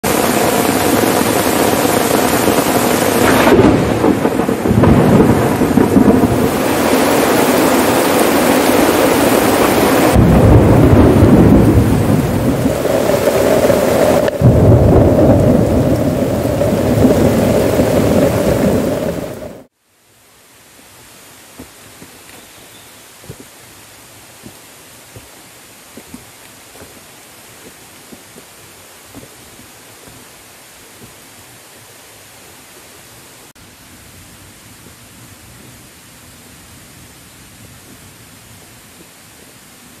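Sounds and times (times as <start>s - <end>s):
thunder rolling: 0.0s - 19.7s
heavy rain on tent and foliage: 0.0s - 40.0s.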